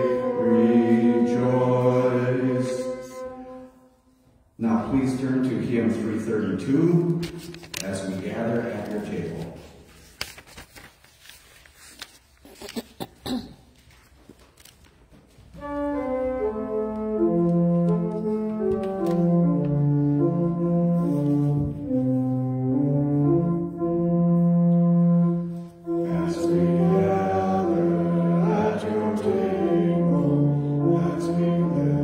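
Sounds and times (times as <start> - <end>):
voices singing: 0.0 - 3.7, 25.9 - 32.0
pipe organ hymn chords: 0.0 - 9.8, 15.5 - 32.0.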